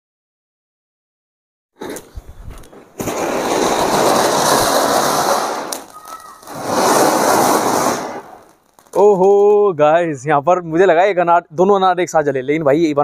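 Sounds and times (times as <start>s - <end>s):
firework fountain hissing: 1.8s - 9.0s.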